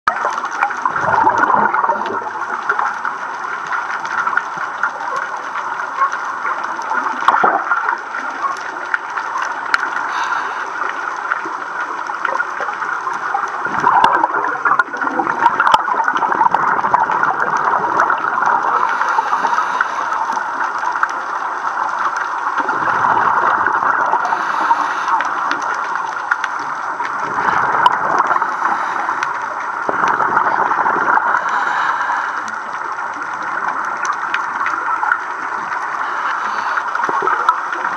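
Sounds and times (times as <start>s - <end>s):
underwater regulator bubbling: 0.1s - 37.9s
watery hiss: 9.8s - 11.5s, 18.5s - 21.3s, 22.0s - 33.1s, 35.5s - 37.9s.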